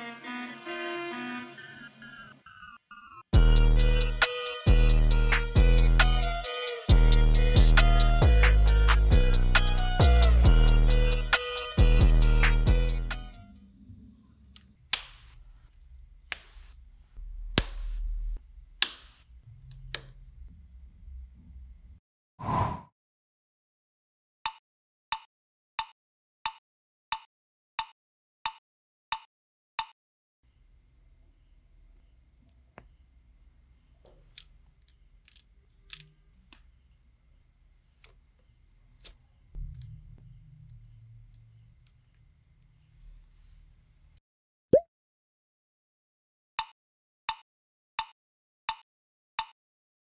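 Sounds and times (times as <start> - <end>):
plastic parts clicking: 34.3 - 36.1
plastic pieces clicking together: 35.2 - 36.1.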